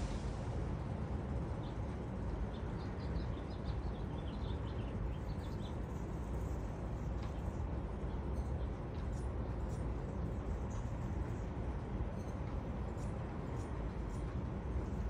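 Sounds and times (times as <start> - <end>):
low outdoor rumble: 0.0 - 15.0
small birds chirping: 2.5 - 6.6.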